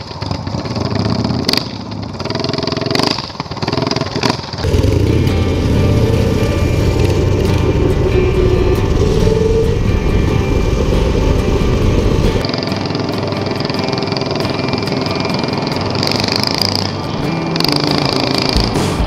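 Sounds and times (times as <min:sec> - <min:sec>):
small petrol engines running: 0:00.0 - 0:18.8
background music: 0:04.6 - 0:19.0.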